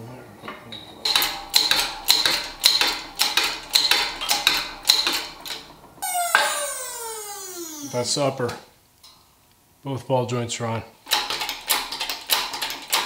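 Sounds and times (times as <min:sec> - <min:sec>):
whine falling in pitch: 0:05.2 - 0:08.4.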